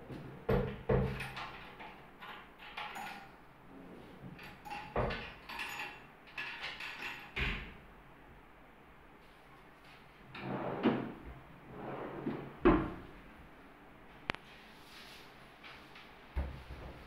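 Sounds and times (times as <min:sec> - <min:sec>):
drawers sliding shut: 0:10.3 - 0:13.0.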